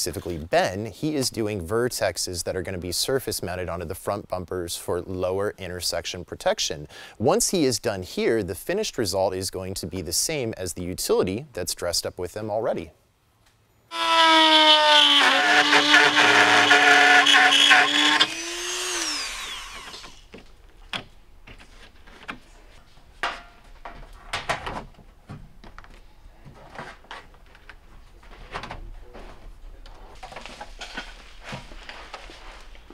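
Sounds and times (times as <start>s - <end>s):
power drill running: 13.9s - 20.3s.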